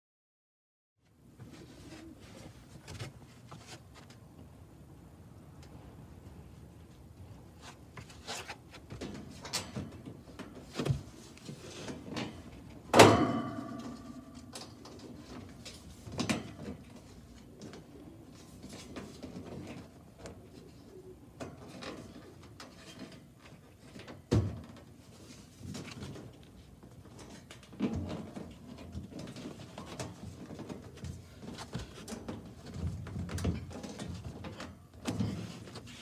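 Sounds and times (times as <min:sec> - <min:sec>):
metallic clang: 0:13.0 - 0:15.0
knocks and scrapes on sheet metal: 0:13.0 - 0:17.1, 0:21.6 - 0:24.6, 0:27.2 - 0:36.0.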